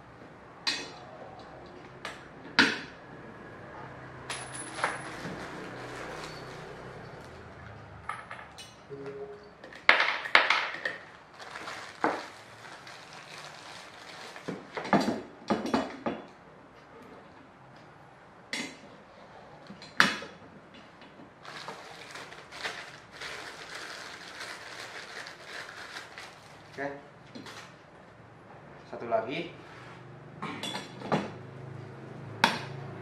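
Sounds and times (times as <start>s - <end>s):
plastic bag crinkling: 11.0s - 14.8s, 21.4s - 27.7s.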